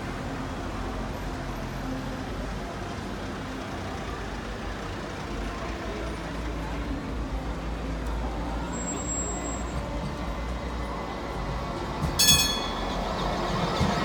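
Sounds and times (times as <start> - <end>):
tram rumbling: 0.0 - 14.0
high ringing: 12.2 - 13.1.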